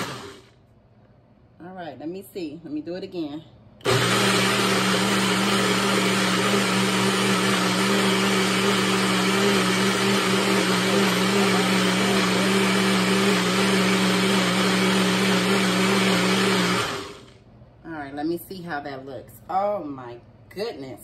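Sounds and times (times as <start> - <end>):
blender motor humming: 0.0 - 0.6, 3.8 - 17.4.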